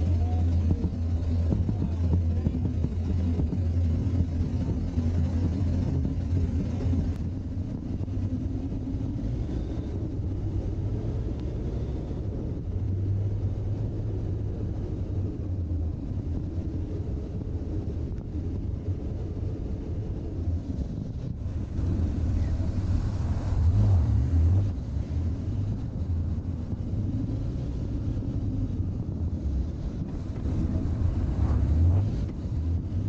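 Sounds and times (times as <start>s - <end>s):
motorcycle engine cruising: 0.0s - 33.0s
wind and road noise: 0.0s - 33.0s.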